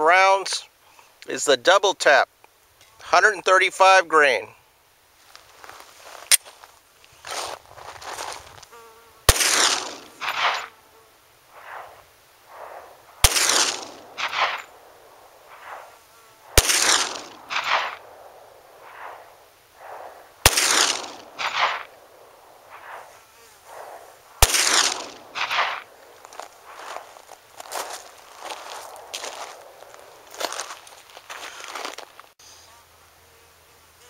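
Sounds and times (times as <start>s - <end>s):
pistol shots with echoes: 9.3s - 10.7s, 13.2s - 14.8s, 16.5s - 18.3s, 19.8s - 23.0s, 24.4s - 25.9s.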